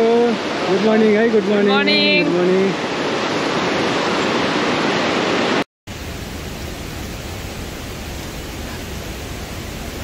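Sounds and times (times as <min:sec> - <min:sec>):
stream rushing: 0:00.0 - 0:10.0.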